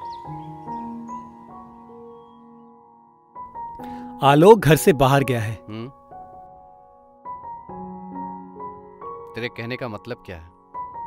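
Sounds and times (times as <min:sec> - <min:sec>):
slow film score melody: 0:00.0 - 0:11.0.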